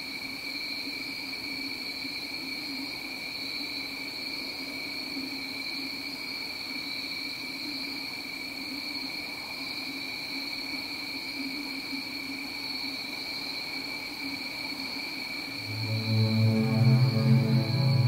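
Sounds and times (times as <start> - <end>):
low steady drone: 15.6 - 18.0.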